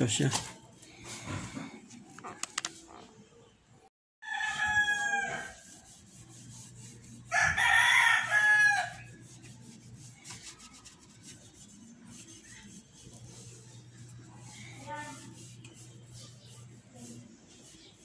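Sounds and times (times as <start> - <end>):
rooster crowing: 4.2 - 5.6, 7.3 - 9.1
rag rubbing on metal frame: 4.5 - 18.0.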